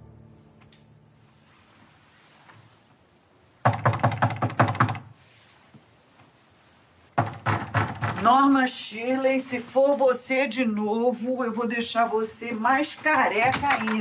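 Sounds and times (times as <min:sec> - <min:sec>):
knocking on wooden door: 0:03.6 - 0:05.1, 0:07.2 - 0:08.4.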